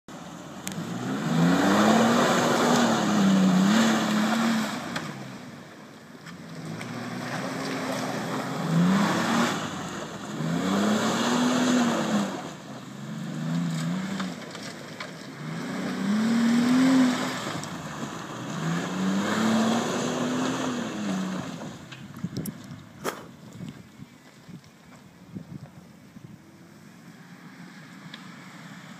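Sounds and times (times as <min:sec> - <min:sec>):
wheels churning through mud: 0:00.2 - 0:24.9
car engine revving hard: 0:00.6 - 0:05.5, 0:06.4 - 0:14.4, 0:15.4 - 0:21.8.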